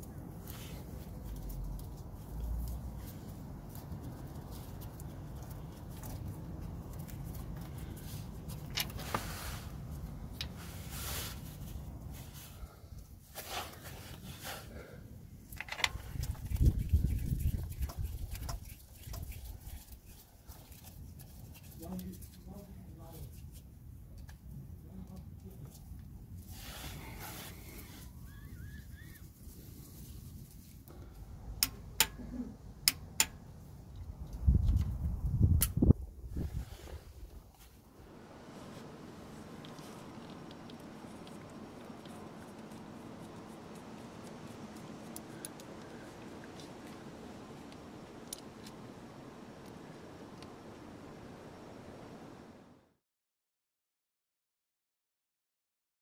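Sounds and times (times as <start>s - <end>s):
steady low rumble: 0.0s - 13.3s, 30.8s - 52.5s
short rustle: 0.4s - 23.7s.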